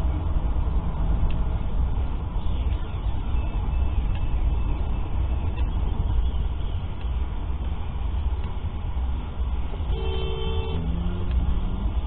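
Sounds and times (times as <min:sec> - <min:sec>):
car driving on wet road: 0:00.0 - 0:12.0
car horn: 0:09.8 - 0:10.9.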